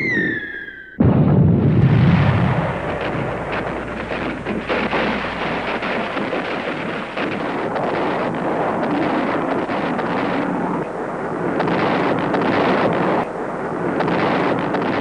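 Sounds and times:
explosion boom: 1.0 - 7.7
rumbling roar with crackles: 1.0 - 15.0.

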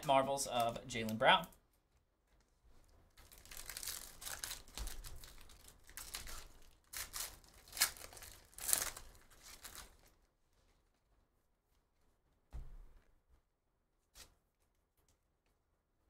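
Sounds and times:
card pack wrappers crinkling: 2.8 - 10.2.

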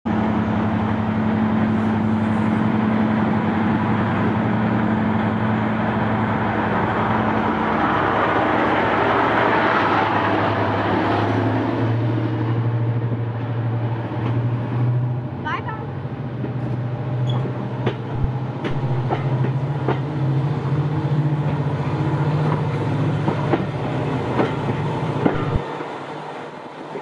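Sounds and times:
diesel locomotive passing: 0.1 - 27.0.

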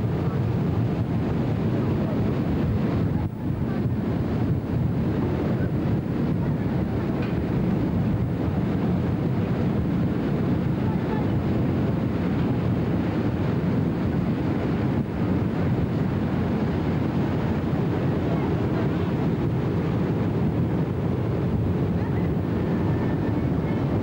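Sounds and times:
ship engine: 0.0 - 24.0
ship wake rushing: 0.0 - 24.0
wind buffeting microphone: 0.0 - 24.0.

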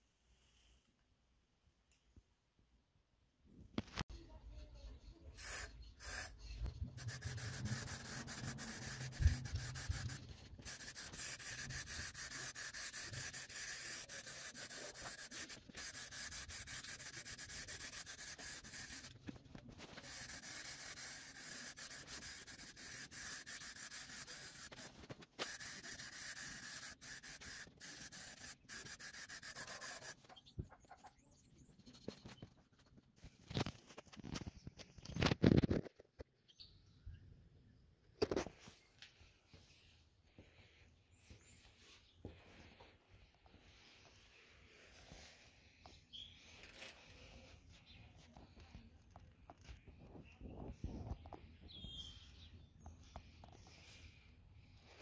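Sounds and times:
aerosol spray hissing: 5.4 - 19.1, 19.9 - 30.2.

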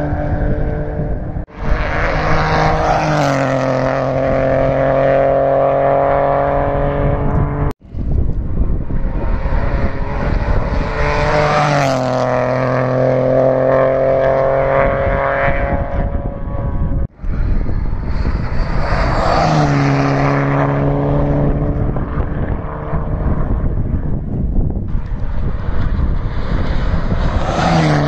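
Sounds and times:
rally cars passing at speed: 0.0 - 7.8, 8.4 - 28.0.

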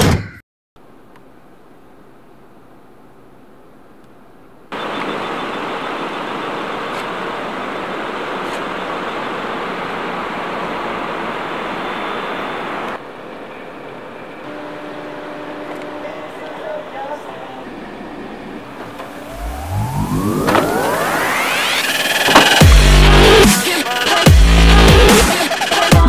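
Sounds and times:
road traffic rushing: 4.7 - 25.6.

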